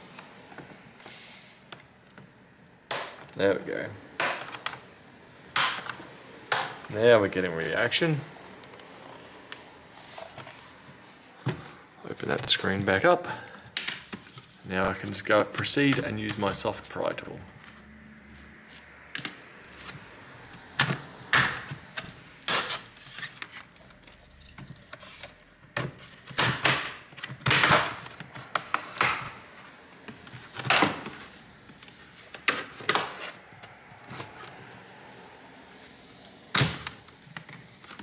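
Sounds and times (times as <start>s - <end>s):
plastic scraping and handling: 20.6s - 34.8s, 35.8s - 38.0s.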